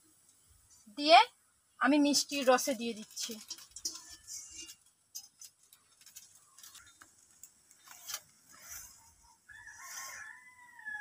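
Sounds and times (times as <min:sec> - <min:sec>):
soft ticks and hisses: 0:00.1 - 0:01.0, 0:02.3 - 0:10.6
dumplings crackling in syrup: 0:02.2 - 0:10.2.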